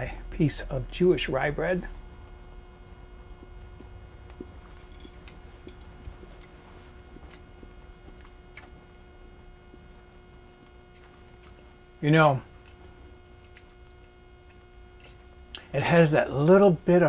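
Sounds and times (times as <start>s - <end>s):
faint electrical hum: 0.0s - 17.0s
person chewing bread: 3.2s - 11.8s, 12.5s - 15.7s.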